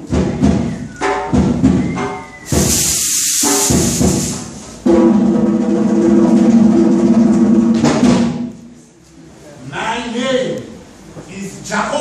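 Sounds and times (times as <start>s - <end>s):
live drumming and music: 0.0s - 8.5s.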